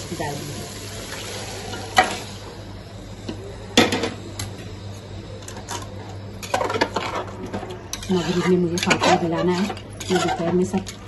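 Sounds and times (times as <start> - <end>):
steady low hum: 0.0 - 11.0
utensils clinking against metal pot: 5.5 - 11.0.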